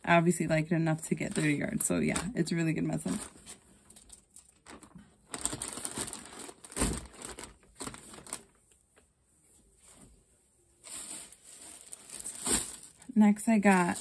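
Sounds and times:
plastic packaging crinkling: 1.2 - 8.7, 10.8 - 14.0.

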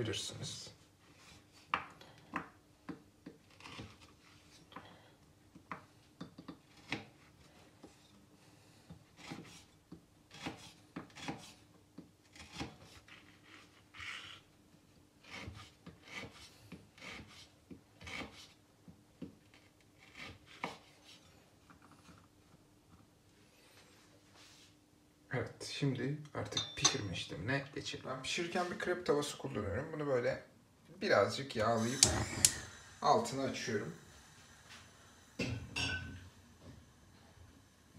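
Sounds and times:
knife scraping: 3.4 - 4.5.

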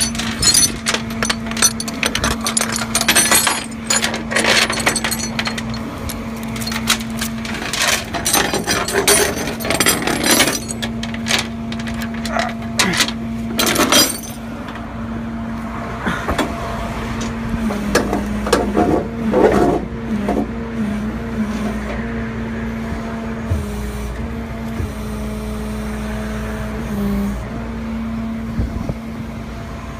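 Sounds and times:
metal chains clinking: 0.0 - 14.4
steady engine hum: 0.0 - 29.9.

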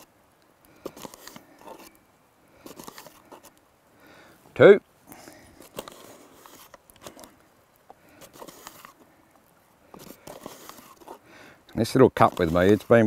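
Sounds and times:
flour scooping and scraping: 9.9 - 13.0.

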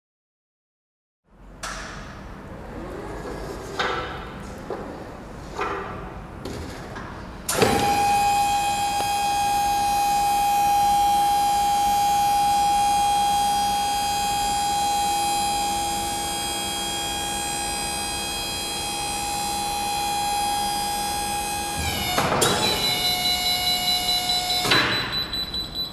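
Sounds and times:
hydraulic pump whine: 7.5 - 25.9
hydraulic unit clunk: 24.5 - 25.4.

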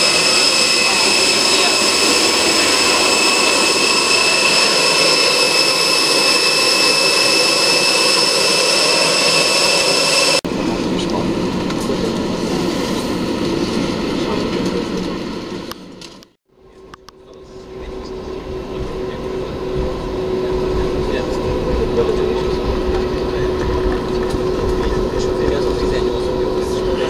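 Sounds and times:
jet airliner whine: 0.0 - 27.0
dull steady rumble: 16.7 - 27.0.

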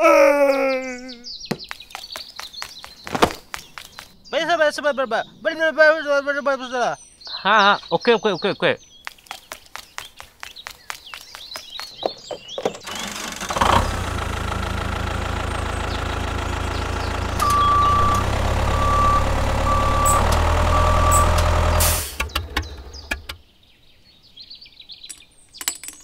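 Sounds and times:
quick clicks: 9.0 - 12.0
tractor engine running: 12.0 - 23.4
reversing alarm beeping: 17.4 - 22.2.

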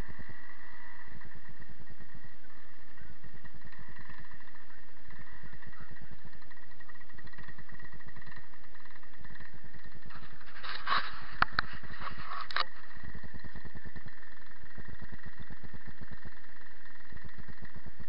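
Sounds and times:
paramotor engine idling: 0.0 - 18.0
rustling with sharp clicks: 6.4 - 13.6.

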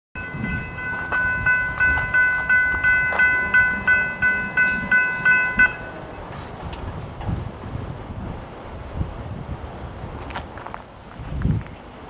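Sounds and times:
railroad crossing bell ringing: 0.2 - 6.3.

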